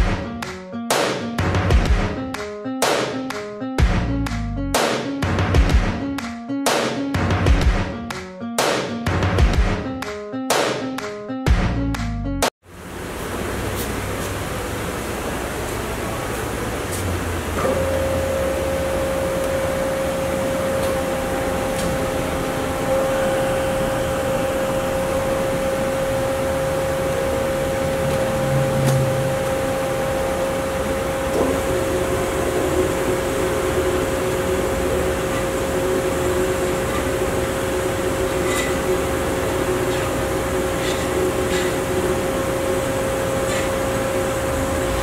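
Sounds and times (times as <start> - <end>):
band saw machine hum and whine: 12.7 - 45.0
hydraulics working: 12.9 - 45.0.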